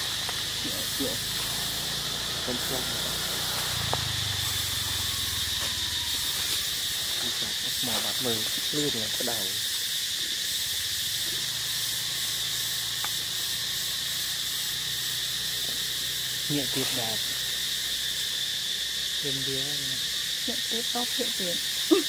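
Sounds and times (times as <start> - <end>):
short pitched calls: 0.0 - 8.3
insects droning: 0.0 - 22.0.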